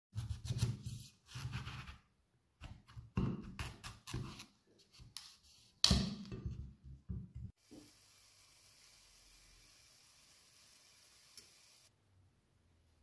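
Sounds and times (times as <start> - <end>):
knife cutting pumpkin on board: 2.6 - 5.3.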